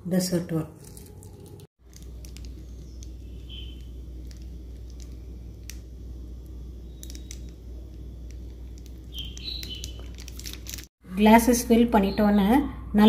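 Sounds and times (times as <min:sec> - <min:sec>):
steady low hum: 0:00.7 - 0:13.0.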